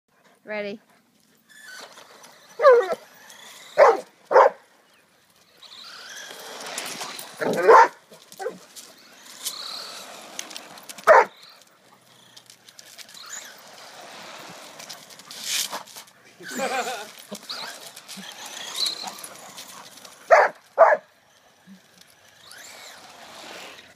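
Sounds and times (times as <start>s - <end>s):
dog barking: 3.8s - 4.6s, 7.5s - 8.6s, 11.1s - 11.3s, 20.3s - 21.0s.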